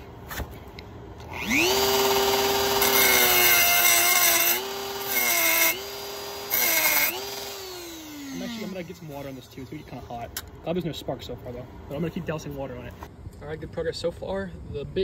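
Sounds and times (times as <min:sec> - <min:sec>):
rotary tool motor whine: 0:01.2 - 0:10.0
bit grinding against metal: 0:01.2 - 0:10.4.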